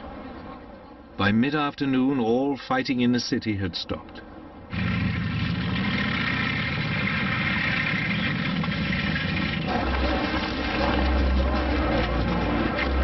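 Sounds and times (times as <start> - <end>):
tank engines idling: 4.7 - 13.0.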